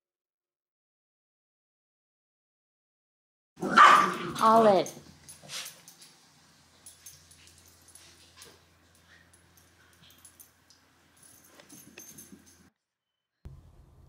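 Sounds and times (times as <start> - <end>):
dog tag ticks and jingles: 6.7 - 12.7.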